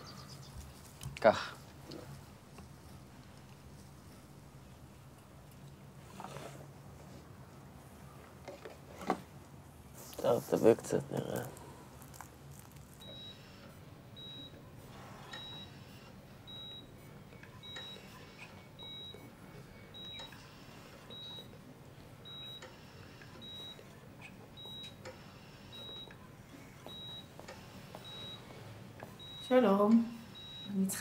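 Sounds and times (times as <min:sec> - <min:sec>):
room hum: 0:00.0 - 0:31.0
patient monitor pulse beeps: 0:13.0 - 0:31.0.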